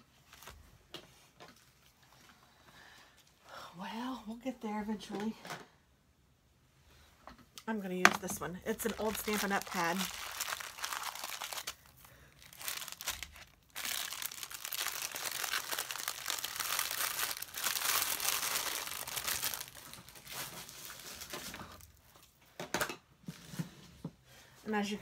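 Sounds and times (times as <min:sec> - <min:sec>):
plastic bags crinkling: 0:08.2 - 0:22.4.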